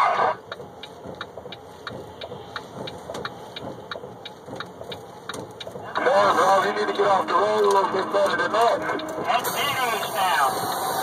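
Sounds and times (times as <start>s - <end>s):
truck engine running: 0.0s - 11.0s
light regular ticking: 0.4s - 11.0s.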